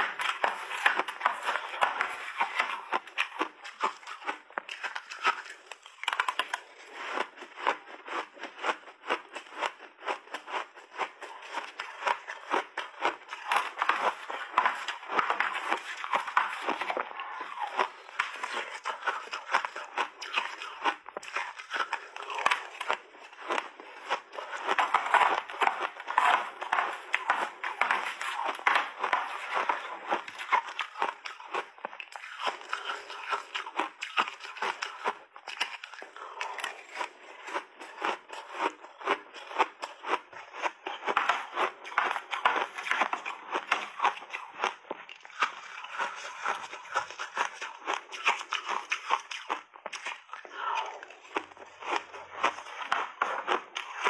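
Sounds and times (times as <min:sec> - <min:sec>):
chewing crunchy ice: 0:00.0 - 0:54.0.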